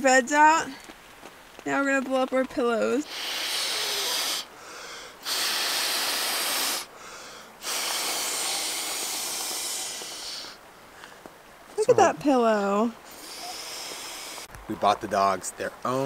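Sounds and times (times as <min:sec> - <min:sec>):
person blowing into inflatable pillow: 0:03.1 - 0:04.5, 0:05.2 - 0:06.9, 0:07.6 - 0:10.6.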